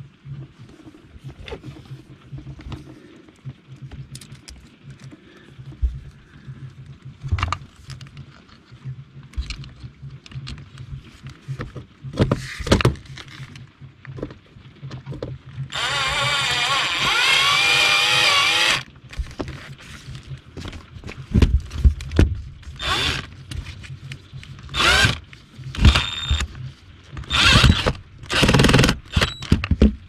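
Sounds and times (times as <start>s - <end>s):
cordless drill driving screw: 15.7s - 18.8s, 22.8s - 23.3s, 24.7s - 25.2s, 25.8s - 26.5s, 27.2s - 29.7s.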